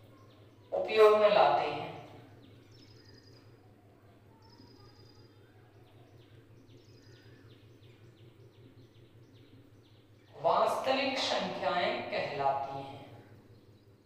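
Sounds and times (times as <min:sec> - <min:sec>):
low hum: 0:00.0 - 0:14.0
faint high chirps: 0:02.0 - 0:08.7.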